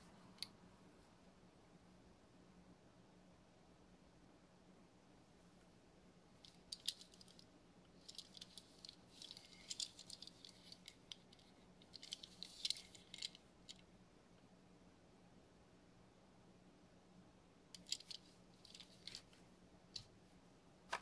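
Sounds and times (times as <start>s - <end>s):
faint low hum: 0.0s - 21.0s
fingers handling toy car: 6.4s - 13.8s, 17.8s - 19.4s.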